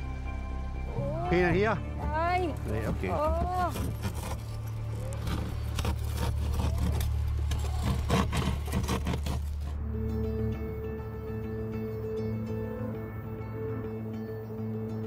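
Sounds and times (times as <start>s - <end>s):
soft music: 0.0s - 15.0s
scraping and knocking on car: 2.6s - 9.8s.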